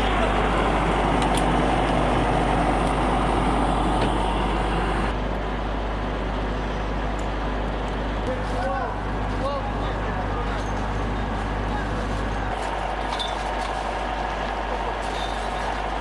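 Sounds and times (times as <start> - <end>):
broad rushing noise: 0.0 - 5.2
vehicle engine running: 0.0 - 16.0.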